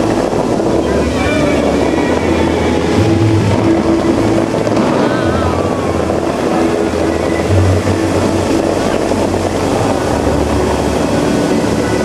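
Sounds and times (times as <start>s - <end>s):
fountain water jets rushing: 0.0s - 12.0s
low musical notes: 0.0s - 12.0s.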